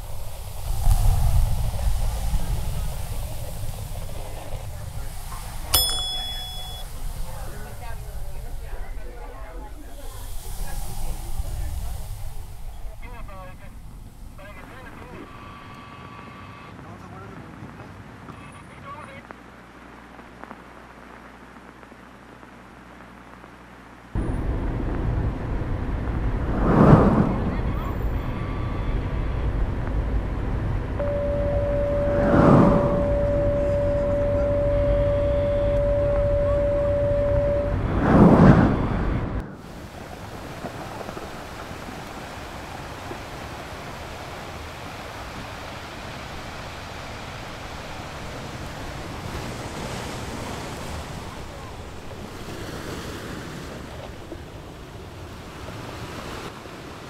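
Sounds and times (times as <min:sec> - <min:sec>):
steady rushing noise: 0:00.0 - 0:15.5, 0:18.8 - 0:56.6
steady static hiss: 0:00.0 - 0:26.6, 0:27.2 - 0:57.0
loud low rumble: 0:24.2 - 0:39.5
loud rushing sound: 0:24.2 - 0:39.6.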